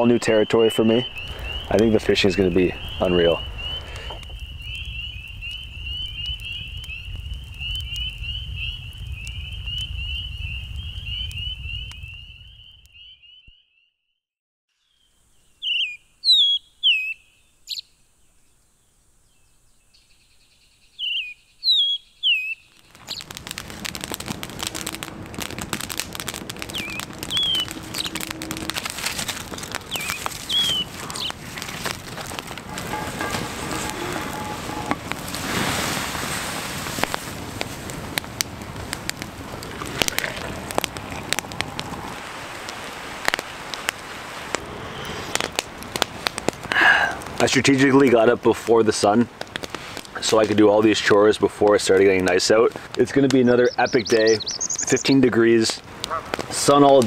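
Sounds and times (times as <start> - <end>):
campfire crackling: 0.0 - 13.0, 20.9 - 57.0
sharp falling bird calls: 0.0 - 13.9, 14.9 - 18.0, 19.7 - 23.9, 26.0 - 35.3, 53.4 - 55.3
low rumble: 23.5 - 35.5, 38.0 - 42.7, 44.4 - 46.2.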